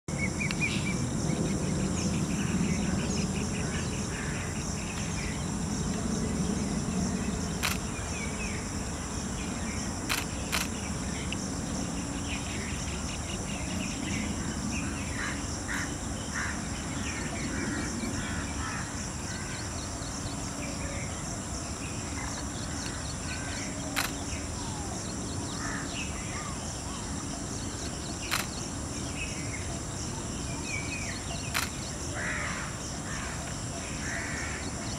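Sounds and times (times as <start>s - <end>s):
high-pitched insect chorus: 0.1s - 34.9s
sharp click: 7.6s - 7.9s, 10.1s - 10.8s, 23.9s - 24.2s, 28.3s - 28.6s, 31.5s - 31.8s.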